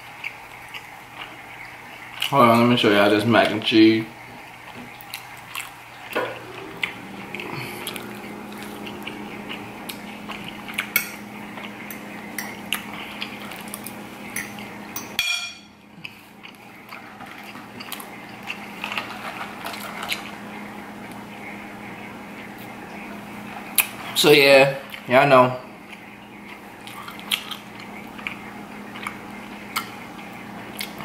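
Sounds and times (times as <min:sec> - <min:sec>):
chewing mouth noises: 0:25.9 - 0:30.0.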